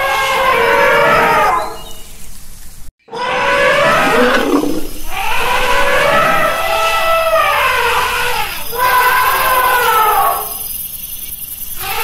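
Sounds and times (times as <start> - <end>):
elephant trumpeting: 0.0 - 1.8, 3.1 - 10.5.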